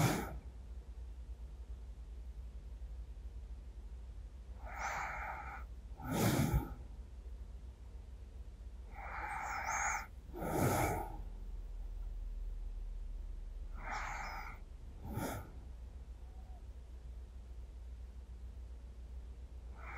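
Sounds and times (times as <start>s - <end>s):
slow deep breathing: 0.0s - 0.6s, 4.6s - 7.1s, 8.8s - 16.8s, 19.6s - 19.9s.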